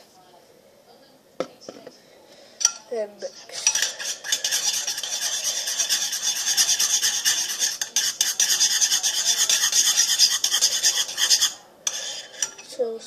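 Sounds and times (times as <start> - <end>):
utensil scraping ceramic bowl: 3.2 - 12.8.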